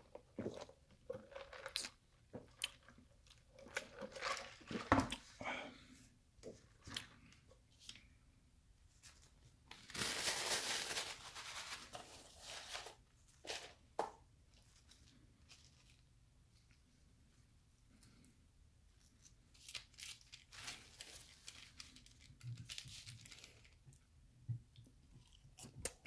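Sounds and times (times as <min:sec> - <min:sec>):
paper and cardboard rustling: 0:09.0 - 0:13.8.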